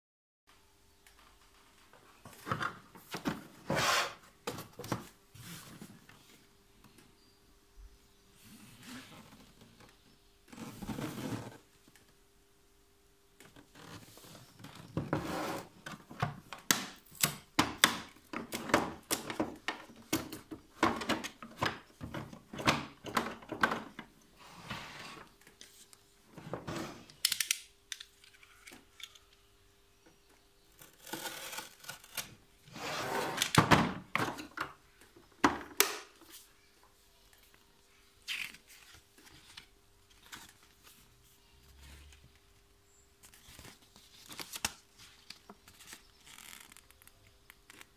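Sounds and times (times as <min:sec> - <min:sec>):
plastic tool case handled: 0:17.6 - 0:24.1.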